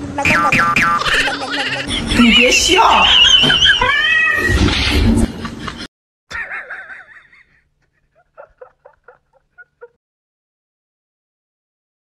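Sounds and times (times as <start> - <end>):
person laughing: 1.0 - 4.0, 5.2 - 10.0.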